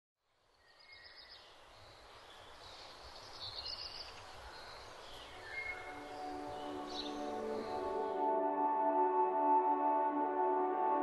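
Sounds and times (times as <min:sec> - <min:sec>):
soft steady hiss: 0:00.2 - 0:08.2
birds chirping: 0:00.6 - 0:08.3.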